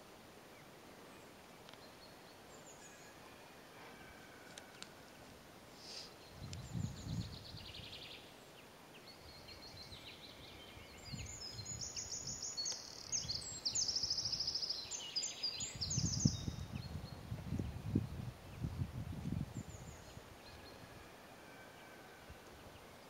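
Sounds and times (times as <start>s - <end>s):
songbirds singing trills: 5.9s - 23.0s.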